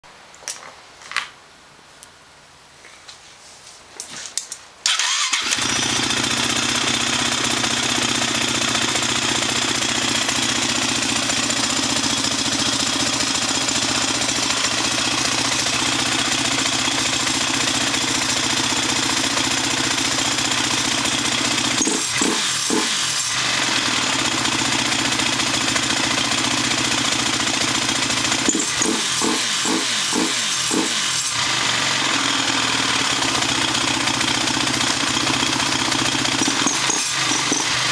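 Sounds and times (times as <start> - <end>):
electric starter cranking: 4.8 - 6.4, 21.1 - 23.8, 28.4 - 31.8, 36.1 - 37.9
engine idling and revving: 4.9 - 37.9.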